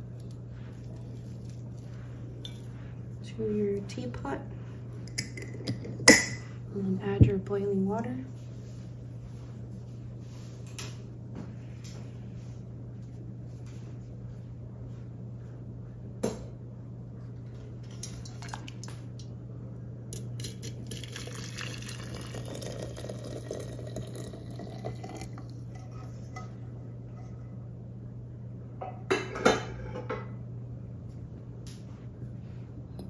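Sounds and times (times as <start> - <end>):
water pouring into teapot: 20.2 - 25.7.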